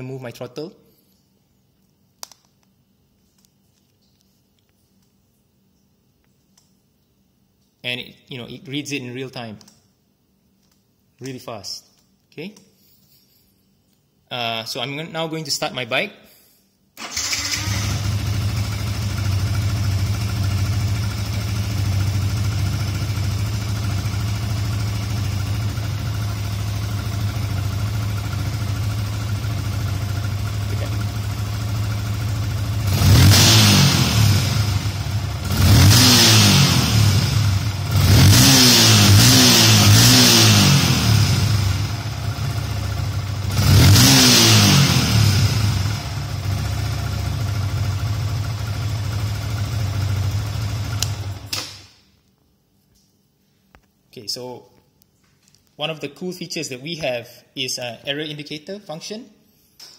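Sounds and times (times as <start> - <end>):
motorcycle engine idling and revving: 17.1 - 51.5.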